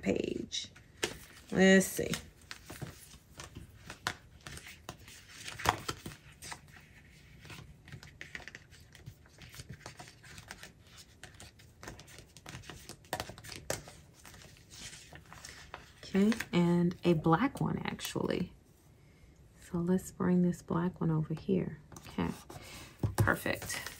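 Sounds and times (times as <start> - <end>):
pages rustling and crinkling: 0.8 - 18.0, 23.2 - 23.9.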